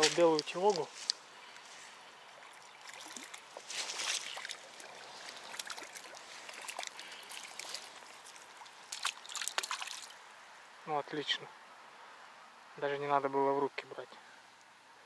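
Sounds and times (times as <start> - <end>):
small clicks and rustles: 0.0 - 1.9
water splashing and trickling: 0.0 - 10.7.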